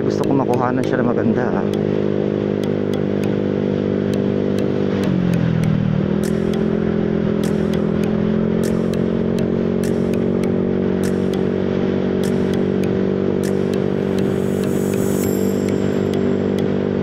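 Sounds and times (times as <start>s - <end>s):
motor scooter engine running: 0.0s - 17.0s
sharp clicks: 2.6s - 3.4s, 4.1s - 16.8s.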